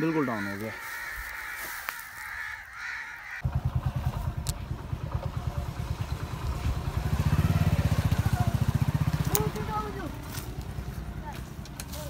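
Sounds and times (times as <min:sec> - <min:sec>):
small engine puttering: 0:03.4 - 0:12.0.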